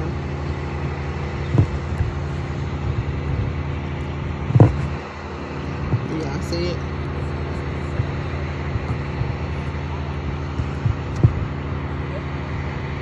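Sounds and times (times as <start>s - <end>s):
wind on microphone: 0.0s - 12.0s
construction machinery engine drone: 0.0s - 13.0s
short thumps: 1.4s - 3.6s, 4.3s - 6.5s, 7.4s - 9.8s, 10.4s - 11.6s.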